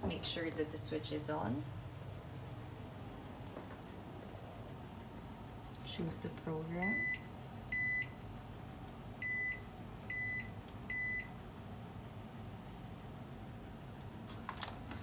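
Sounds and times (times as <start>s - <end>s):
washing machine beeps: 6.8s - 8.2s, 9.2s - 11.4s.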